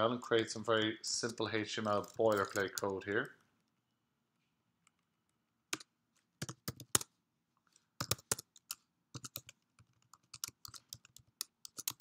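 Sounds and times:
computer keyboard typing: 5.7s - 7.1s, 8.0s - 12.0s.

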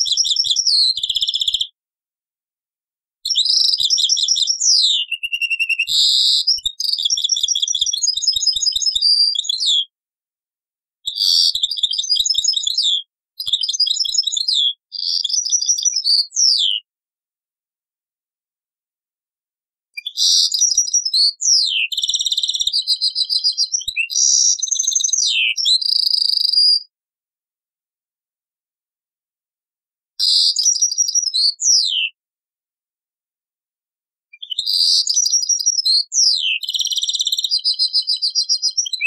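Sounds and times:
finch singing high twittering trills: 3.3s - 9.8s, 30.2s - 32.1s.

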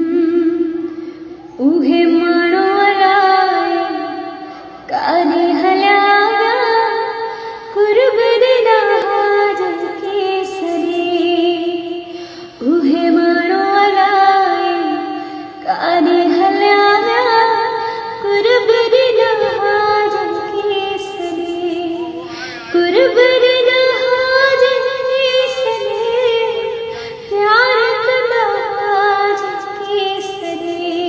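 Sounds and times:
high voice singing held notes: 19.4s - 26.6s.

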